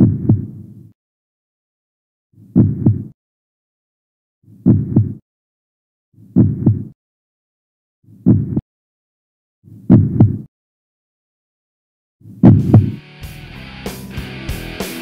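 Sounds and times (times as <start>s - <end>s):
heartbeat thumps: 0.0s - 0.6s, 2.6s - 3.1s, 4.6s - 5.2s, 6.4s - 7.0s, 8.2s - 8.6s, 9.9s - 10.5s, 12.4s - 13.0s.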